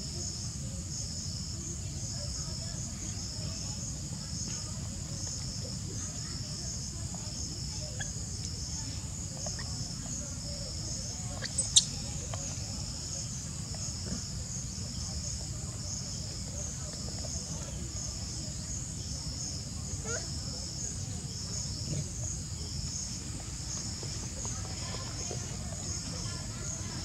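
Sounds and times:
high-pitched insect chorus: 0.0 - 27.0
sharp squeak: 11.4 - 12.0.

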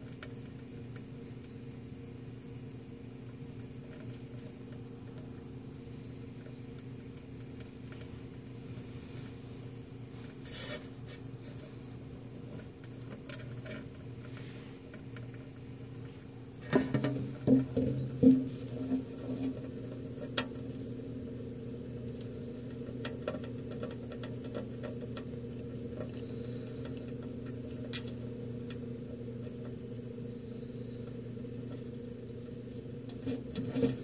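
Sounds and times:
low room hum: 0.0 - 34.0
handling knocks and rubbing: 16.6 - 19.6.

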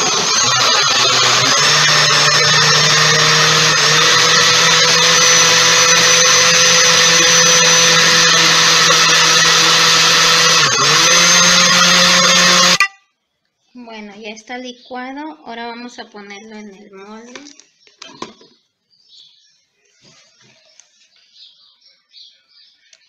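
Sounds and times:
blender motor running: 0.0 - 12.8.

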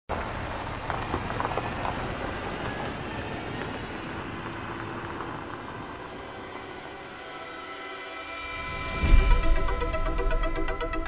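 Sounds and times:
car driving past on gravel: 0.1 - 10.0.

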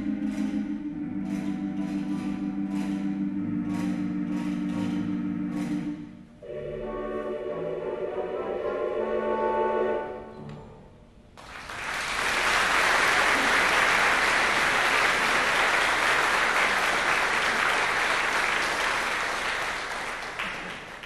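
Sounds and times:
audience applauding: 11.4 - 21.0.

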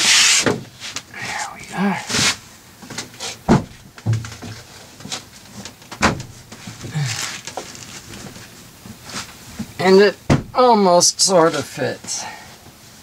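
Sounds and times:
cushion scraping and rustling: 0.0 - 9.8
seat cushion knocks: 3.5 - 4.6, 6.0 - 6.7, 10.3 - 10.6.

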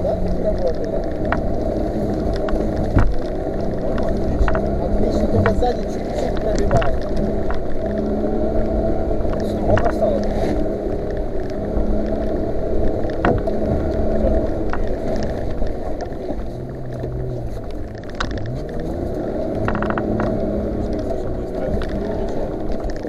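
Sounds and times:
vehicle engine under load: 0.0 - 23.0
water washing over vehicle: 0.0 - 23.0
chassis knocks: 12.8 - 18.8.

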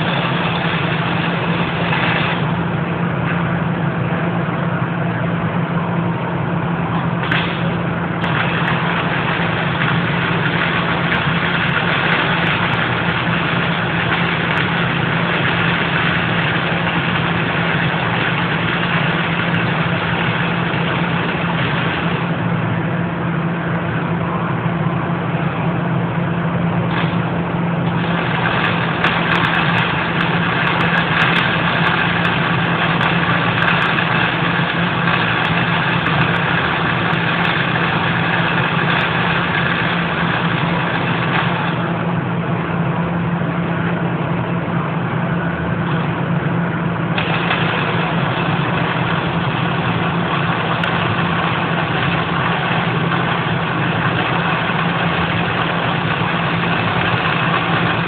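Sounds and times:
welding arc crackling: 0.0 - 4.0, 7.0 - 24.1, 26.8 - 42.7, 45.5 - 58.0
constant low hum: 0.0 - 58.0
sharp pops: 7.2 - 22.2.

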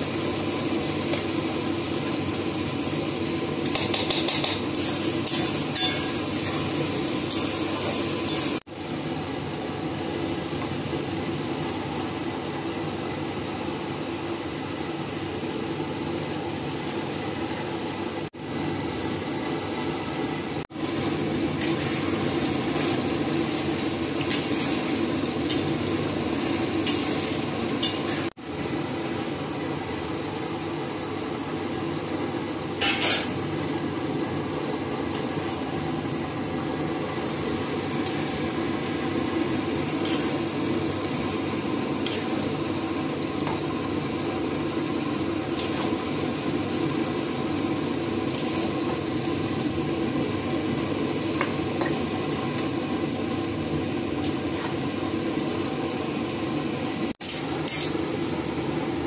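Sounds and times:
food sizzling in a pan: 0.0 - 59.0.

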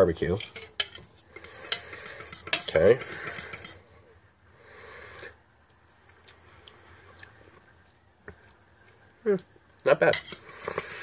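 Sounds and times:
soft breathy sound: 3.0 - 5.5
lip and mouth noises: 5.6 - 9.5.

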